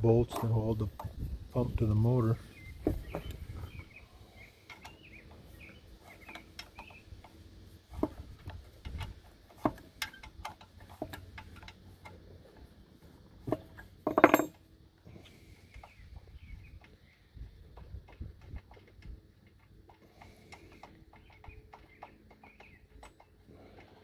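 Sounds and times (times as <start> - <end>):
metal clatter: 13.5 - 14.6.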